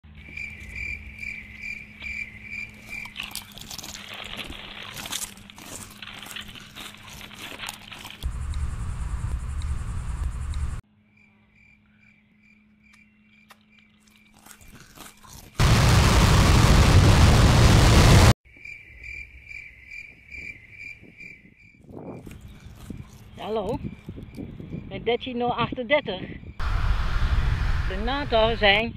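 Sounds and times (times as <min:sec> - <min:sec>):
crickets chirping: 0:00.2 - 0:03.5, 0:08.2 - 0:16.0, 0:18.5 - 0:26.6
crisps crunching: 0:02.6 - 0:08.3, 0:14.0 - 0:17.8, 0:22.2 - 0:23.8
loud noise bursts: 0:15.6 - 0:18.4, 0:26.6 - 0:28.0.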